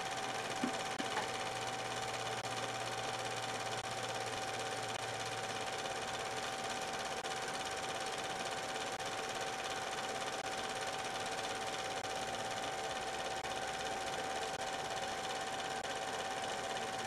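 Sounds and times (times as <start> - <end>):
film projector whirring: 0.0 - 17.0.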